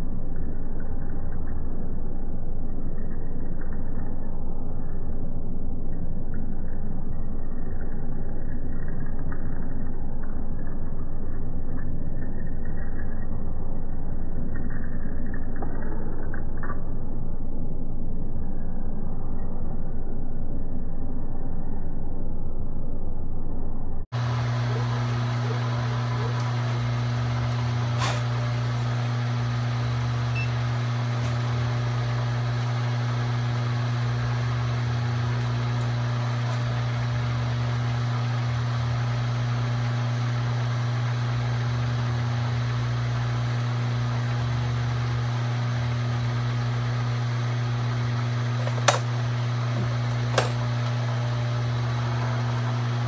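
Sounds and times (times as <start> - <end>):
milling machine spindle humming: 24.2 - 53.0.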